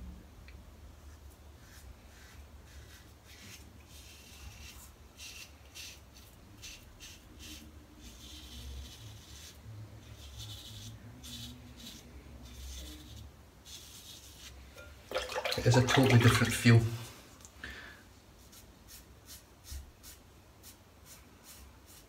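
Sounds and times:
razor scraping stubble: 1.6 - 14.6.

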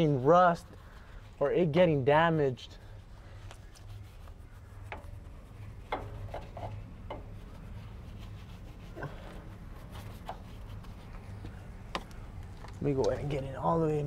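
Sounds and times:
brush bristles rubbing: 0.0 - 14.0
low hum: 2.8 - 13.9
brush knocking on metal: 4.8 - 7.8.

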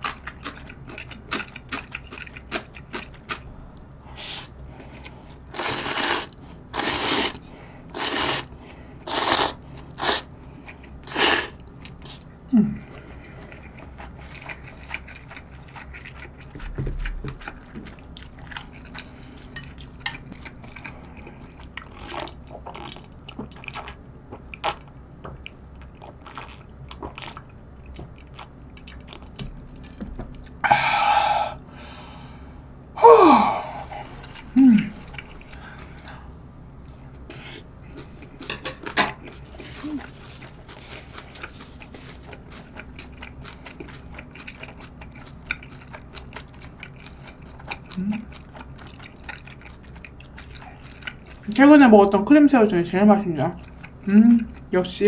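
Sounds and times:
person chewing: 0.0 - 8.5, 9.1 - 30.6, 33.5 - 51.6, 53.6 - 54.7
loud slurps: 9.1 - 10.2.

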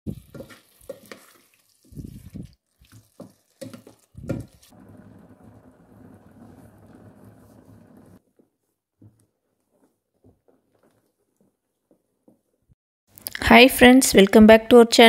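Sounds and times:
curry bubbling: 0.1 - 8.2.

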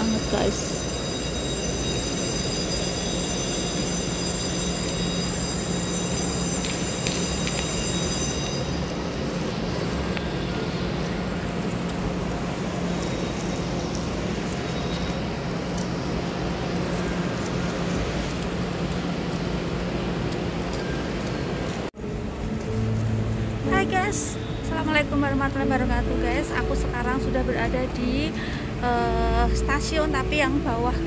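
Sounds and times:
train rumble: 0.0 - 31.0.

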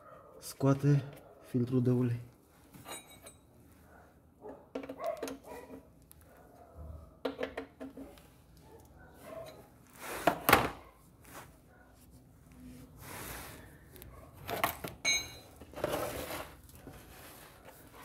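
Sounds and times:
wrench clinking on metal: 2.8 - 3.5, 15.0 - 15.6.

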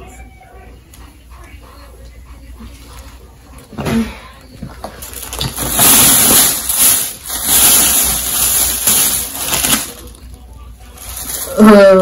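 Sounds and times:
packaging rustling and crinkling: 4.8 - 11.6.

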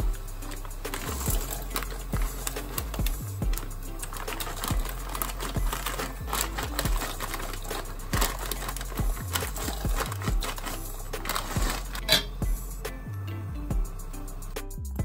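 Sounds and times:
background music: 0.0 - 15.0
plastic bag of pasta crinkling: 0.4 - 12.2.

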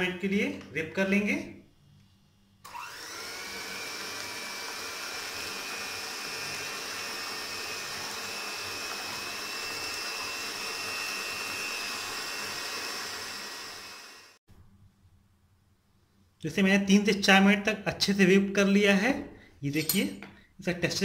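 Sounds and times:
electric hand mixer whining: 2.6 - 14.4.

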